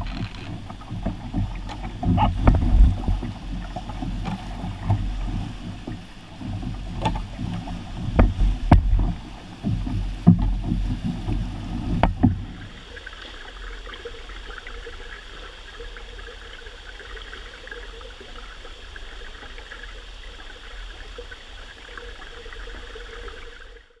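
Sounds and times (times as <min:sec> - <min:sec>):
canoe pole knocking: 0:00.0 - 0:12.7
wind buffeting microphone: 0:00.0 - 0:12.9
water running over riffle: 0:00.0 - 0:16.8.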